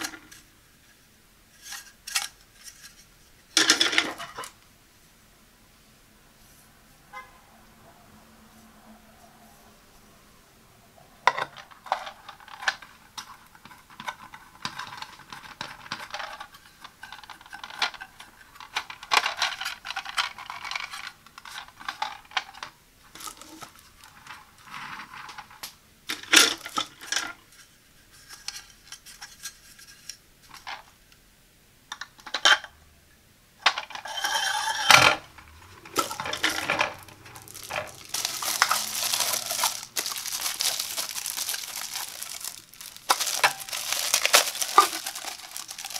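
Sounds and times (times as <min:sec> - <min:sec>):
plastic wrapping crinkling: 0:11.6 - 0:25.4, 0:33.8 - 0:45.9.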